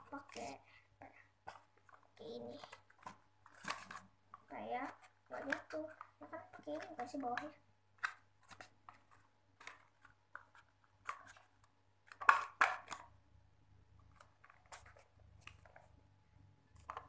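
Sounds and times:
plastic packaging clicks and scrapes: 1.5 - 4.1, 4.8 - 13.1, 14.0 - 15.9, 16.7 - 17.0.

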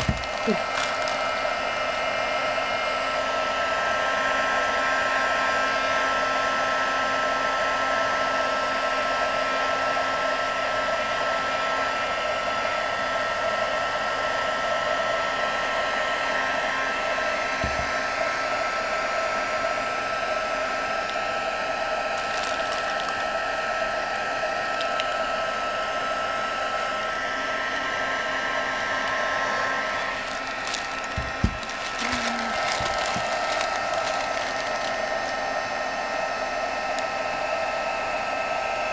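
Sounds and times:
heat gun whining: 0.0 - 7.2, 15.1 - 38.9.

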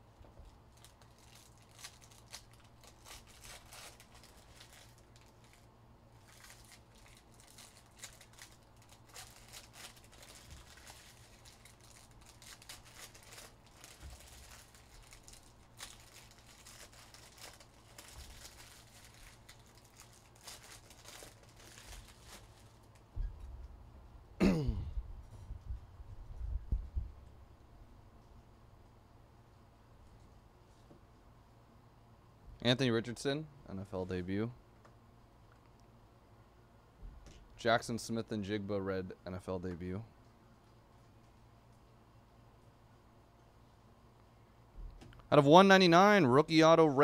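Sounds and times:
wrappers crinkling and tearing: 0.7 - 23.1
cards rustling: 6.2 - 22.9.

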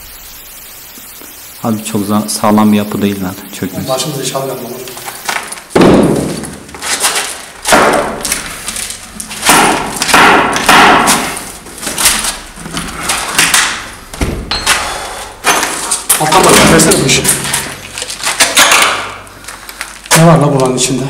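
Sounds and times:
loud thuds and knocks: 5.7 - 6.5.

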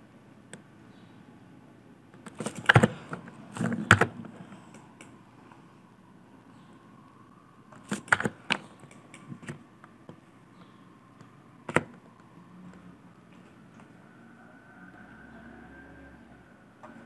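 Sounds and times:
faint room hum: 0.0 - 17.0
mouse and keyboard clicks: 2.2 - 5.2, 7.8 - 9.6.

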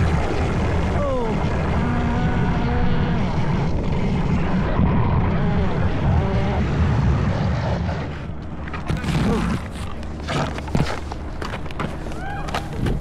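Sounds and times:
skate wheels rolling on asphalt: 7.7 - 13.0.

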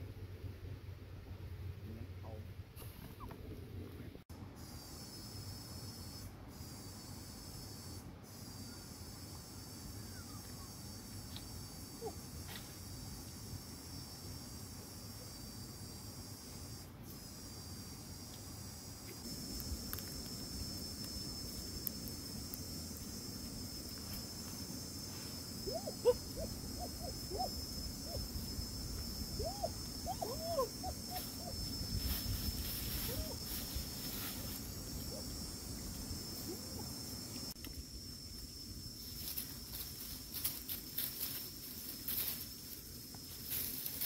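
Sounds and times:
high-pitched insect drone: 4.6 - 44.0
rustling in dry leaves: 31.1 - 36.4, 38.9 - 44.0.

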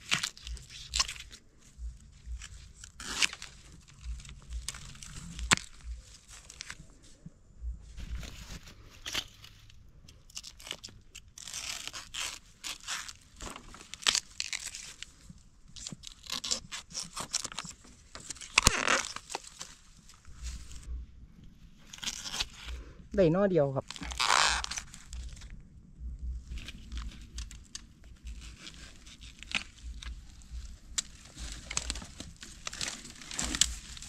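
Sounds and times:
dry bamboo leaves crunching: 0.0 - 7.2, 7.9 - 20.9, 21.8 - 25.5, 26.4 - 34.0.

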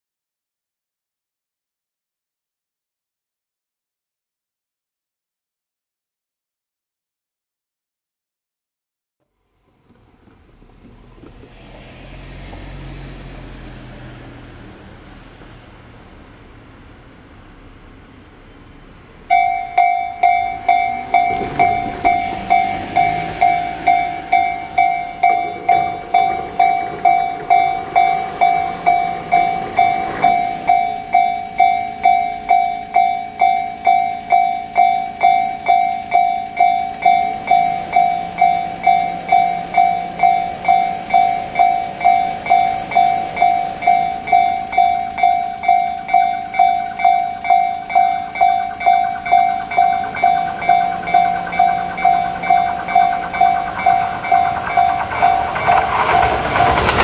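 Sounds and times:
electric train approaching: 9.2 - 57.0
level crossing alarm bell: 19.3 - 57.0.

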